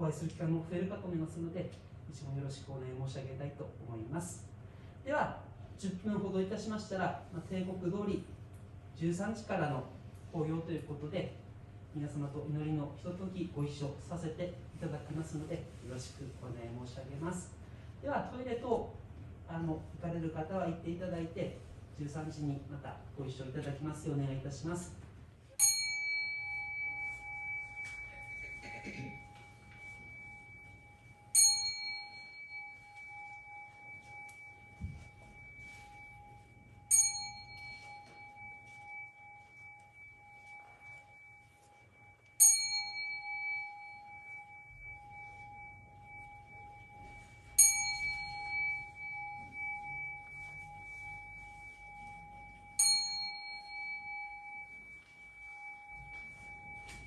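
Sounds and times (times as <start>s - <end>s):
bell ringing: 25.6s - 57.0s.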